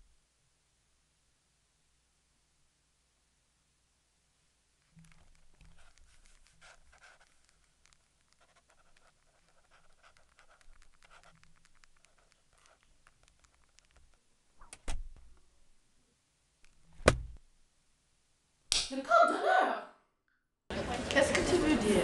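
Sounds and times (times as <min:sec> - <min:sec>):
paper and pens rustling: 0:04.8 - 0:14.2
sharp knocks: 0:17.0 - 0:17.4.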